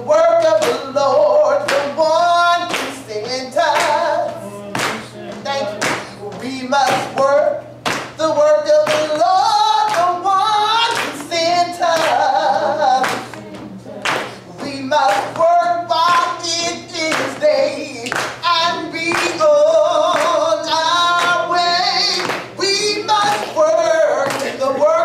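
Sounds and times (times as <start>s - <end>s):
woman singing gospel song: 0.0s - 25.0s
handclaps: 0.6s - 0.8s, 2.6s - 3.0s, 3.7s - 4.0s, 4.8s - 5.1s, 5.8s - 6.1s, 6.9s - 8.2s, 8.8s - 9.2s, 9.8s - 10.2s, 10.9s - 11.4s, 12.0s - 12.3s, 13.0s - 13.4s, 14.0s - 18.4s, 19.1s - 19.4s, 20.0s - 20.4s, 21.1s - 21.5s, 22.1s - 22.6s, 23.2s - 23.6s, 24.2s - 24.6s.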